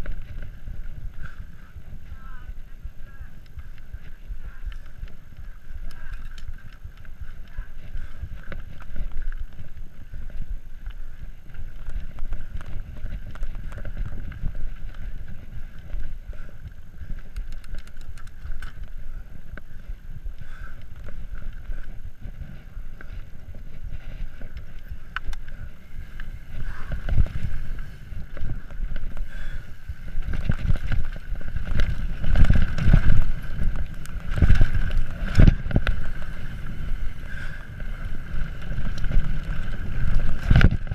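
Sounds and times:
bike rattling over ground: 0.0s - 40.9s
bike tyres rumbling: 0.0s - 40.9s
wind rushing over microphone: 0.0s - 40.9s.

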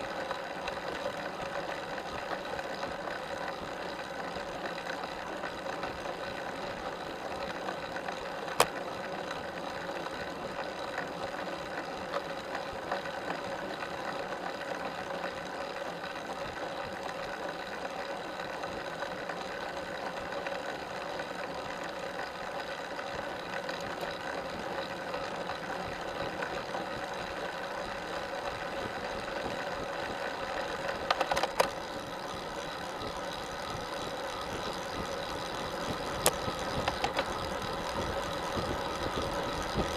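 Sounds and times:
bicycle chain whirring: 0.0s - 39.9s
rattle of clicks: 0.2s - 9.4s, 30.0s - 39.9s.

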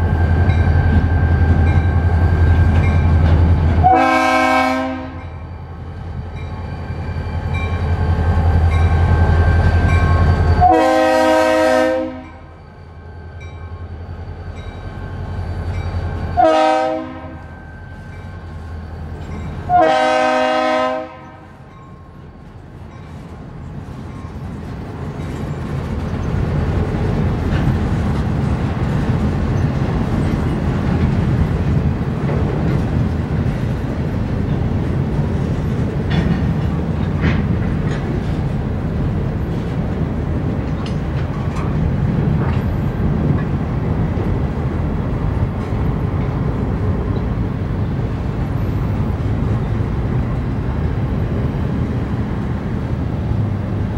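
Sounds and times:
train wheels rumbling on rail: 0.0s - 53.9s
train horn blast: 3.8s - 5.4s, 10.6s - 12.5s, 16.4s - 17.6s, 19.7s - 21.6s.

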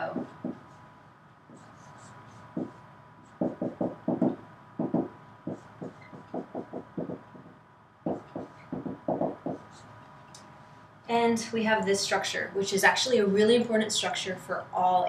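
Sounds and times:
marker squeaking on whiteboard: 1.5s - 7.5s, 8.1s - 10.0s.

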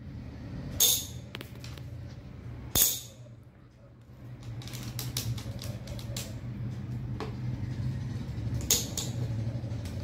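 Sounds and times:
steady low hum: 0.0s - 4.8s.

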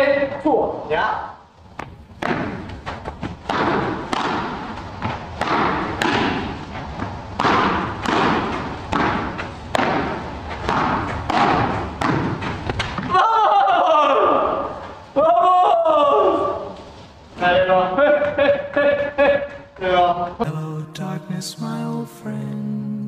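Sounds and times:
padel ball racket hits: 1.8s - 13.2s.

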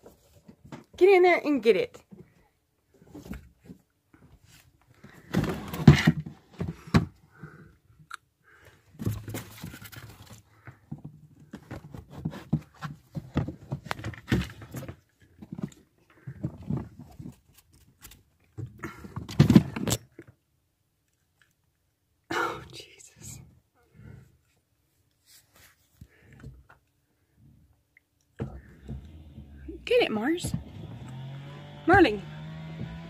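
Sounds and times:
plastic tubs thumping and scraping: 3.0s - 7.4s, 9.0s - 17.5s, 18.6s - 20.1s, 28.4s - 33.0s.

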